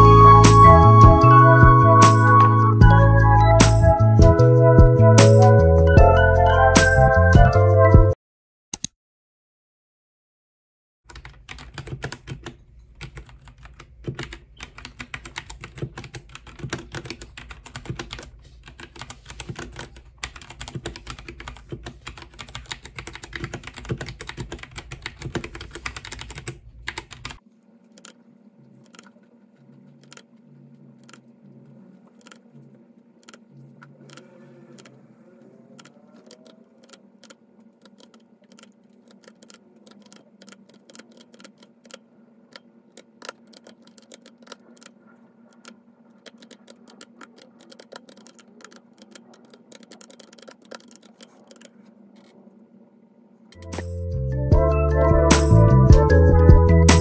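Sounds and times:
mechanical keyboard typing: 0:11.1 - 0:27.4, 0:30.0 - 0:30.3, 0:32.2 - 0:32.4, 0:34.0 - 0:35.0, 0:35.8 - 0:52.4
faint steady hum: 0:11.1 - 0:54.0.

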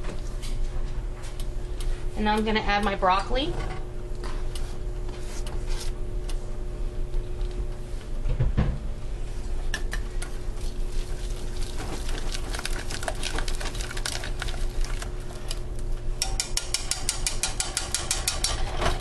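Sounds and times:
whisk scraping a saucepan: 0:10.4 - 0:15.6.

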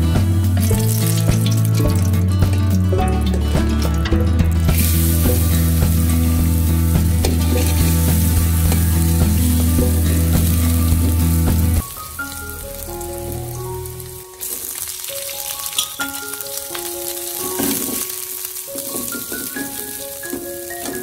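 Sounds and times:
light plucked tune: 0:00.0 - 0:21.0
garlic sizzling in oil: 0:04.6 - 0:21.0.

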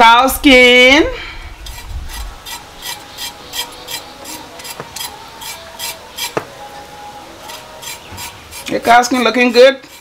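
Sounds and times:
knife scraping cow skin: 0:01.6 - 0:06.7, 0:07.4 - 0:10.0.

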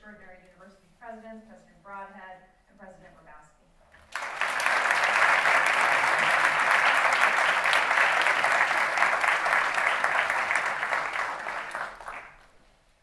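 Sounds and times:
audience applauding: 0:04.1 - 0:12.5.

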